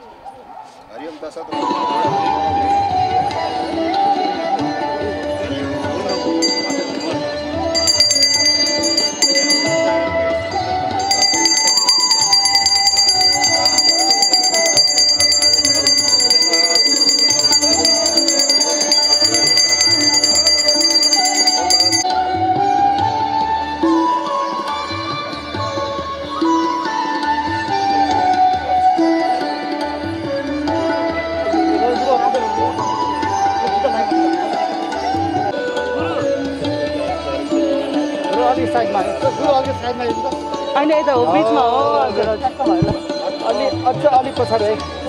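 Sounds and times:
small hand bell ringing: 6.1 - 22.1.

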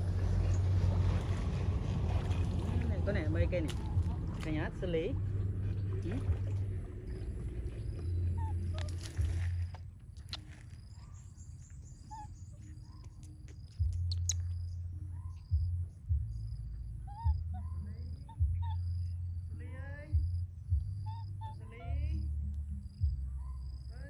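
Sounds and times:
low microphone rumble: 0.0 - 10.0, 13.7 - 24.0
birds chirping: 3.2 - 22.3
sharp clicks: 13.1 - 14.6.

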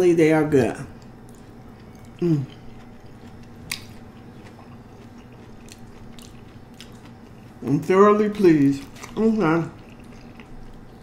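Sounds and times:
person chewing: 0.9 - 7.7, 8.3 - 11.0
person humming mm: 2.2 - 2.6.

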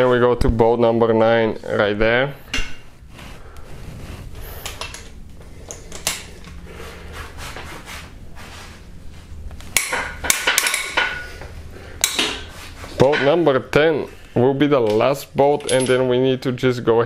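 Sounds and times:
metal clicks and clinks: 15.6 - 16.0.

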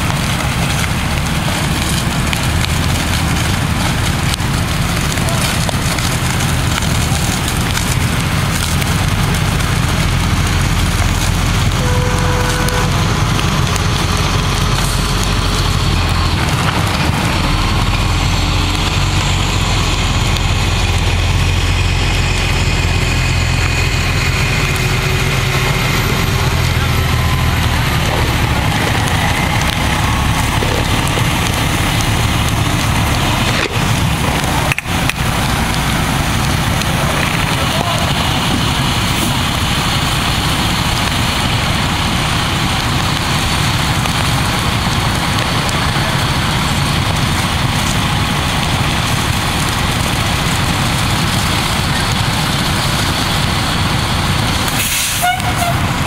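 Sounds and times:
fire engine humming: 0.0 - 56.0
water rushing hiss: 22.9 - 56.0.

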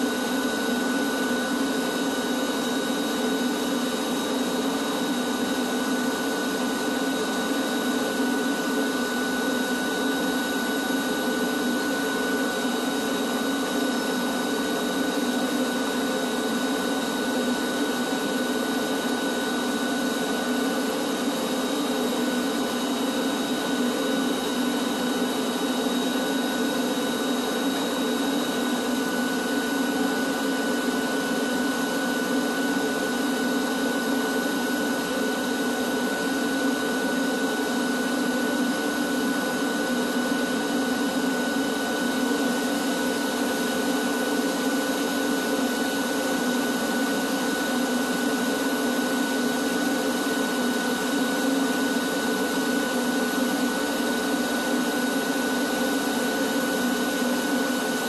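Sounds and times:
drum vacuum running: 16.3 - 37.8.

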